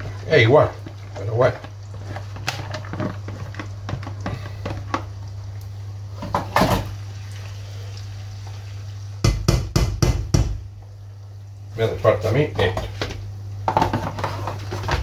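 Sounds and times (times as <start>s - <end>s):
spatula tapping and scraping: 0.0s - 5.1s, 12.6s - 15.0s.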